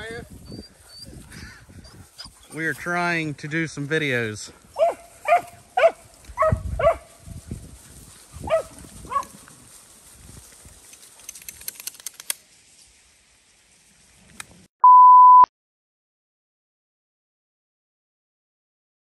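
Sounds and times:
dogs barking: 0:04.7 - 0:07.2, 0:08.4 - 0:09.4.

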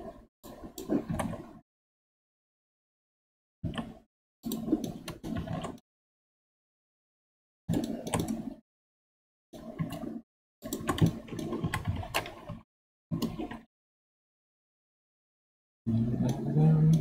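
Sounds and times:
keyboard and mouse clicks: 0:00.0 - 0:01.6, 0:03.6 - 0:05.8, 0:07.7 - 0:08.6, 0:09.6 - 0:13.7.

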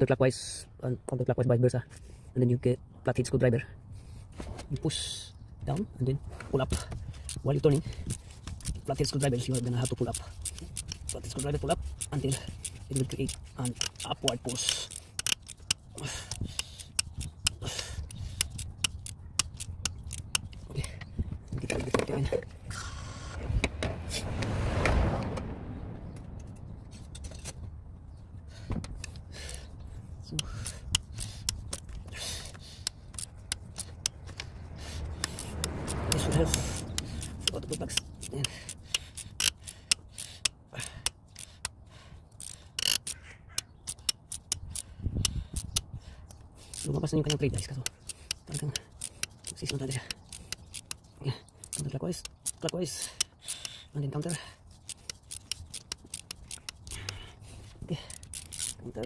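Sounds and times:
socket ratchet clicking: 0:07.1 - 0:21.0, 0:30.3 - 0:59.0
metal scrape: 0:22.7 - 0:27.8.

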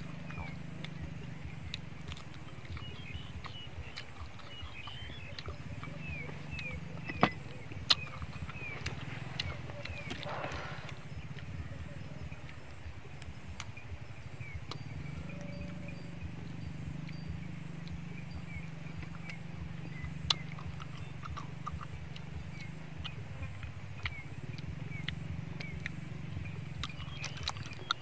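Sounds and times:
snail shells clicking: 0:00.0 - 0:11.6, 0:16.4 - 0:28.0
steady low rumble: 0:00.0 - 0:28.0.

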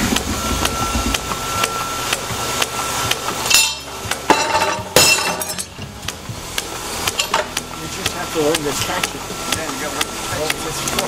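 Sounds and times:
ringing metal clank: 0:03.5 - 0:05.8
drop hammer striking metal: 0:03.5 - 0:05.9.

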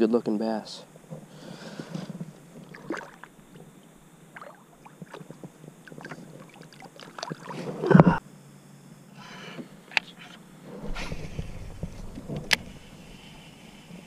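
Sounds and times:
knocks and rustles in a plastic kayak: 0:10.7 - 0:13.2
loud thump: 0:10.8 - 0:13.2.

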